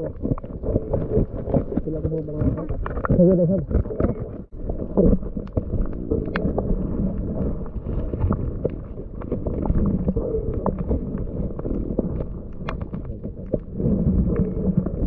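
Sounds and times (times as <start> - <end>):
muffled underwater rumble: 0.0 - 15.0
sharp underwater clicks: 5.2 - 6.6, 8.1 - 13.7.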